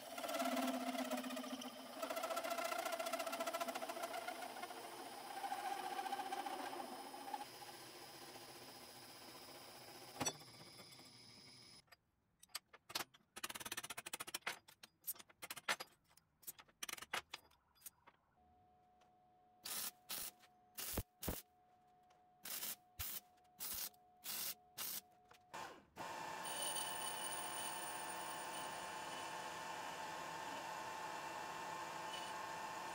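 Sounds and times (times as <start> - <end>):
short welding bursts: 19.6 - 21.4.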